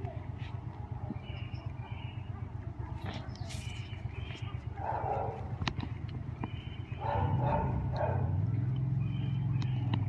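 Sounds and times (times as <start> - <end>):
dogs vocalising: 7.0 - 8.4.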